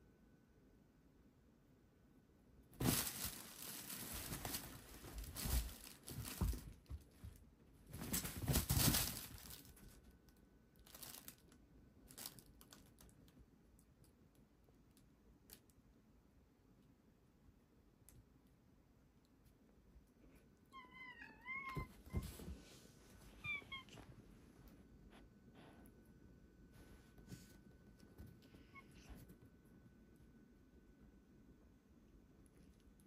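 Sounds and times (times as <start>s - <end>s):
fabric tunnel rustling: 2.8s - 9.7s
cats scrambling: 7.9s - 9.6s.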